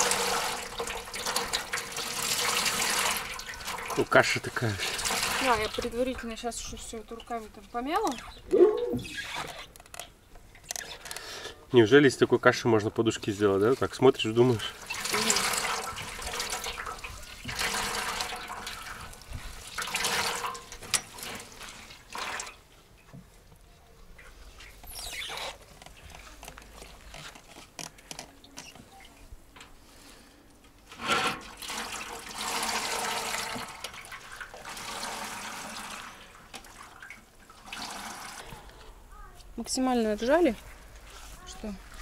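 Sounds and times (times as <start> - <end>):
water squelching from wet feathers: 0.0 - 6.0, 14.5 - 22.6.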